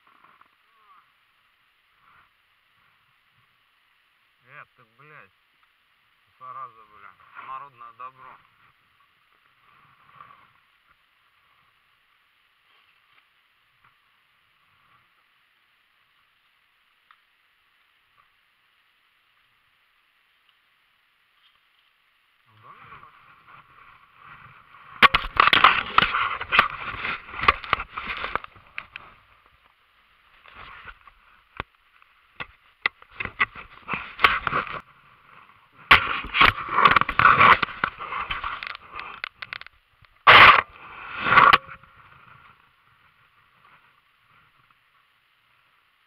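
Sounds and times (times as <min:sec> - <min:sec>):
crunching and scraping: 0:22.5 - 0:44.6.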